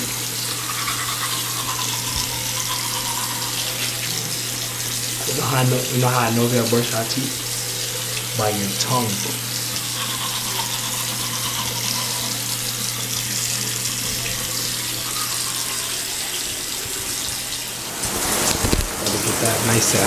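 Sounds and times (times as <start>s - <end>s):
tap running into sink: 2.0s - 5.6s, 12.6s - 19.2s.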